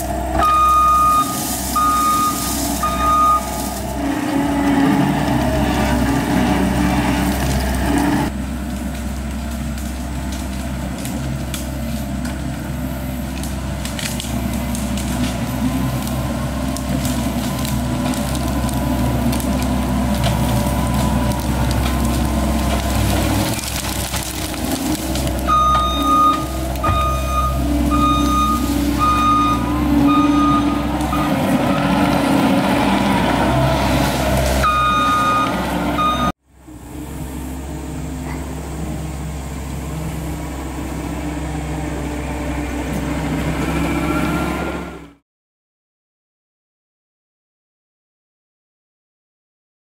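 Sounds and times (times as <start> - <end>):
diesel engine running under load: 0.0 - 45.2
reverse alarm beeping: 0.4 - 3.7, 25.5 - 31.8, 34.6 - 36.4.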